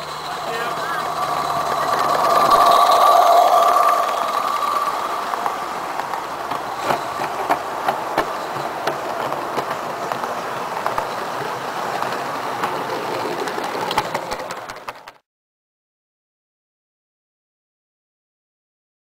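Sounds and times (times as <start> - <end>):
model coaches rolling rumble: 0.0 - 15.2
wheels clicking over rail joints: 0.0 - 15.2.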